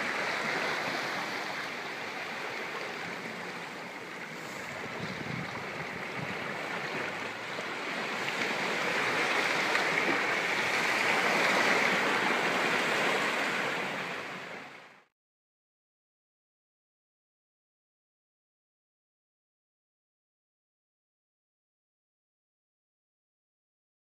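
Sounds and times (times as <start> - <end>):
waves splashing against rocks: 0.0 - 14.7.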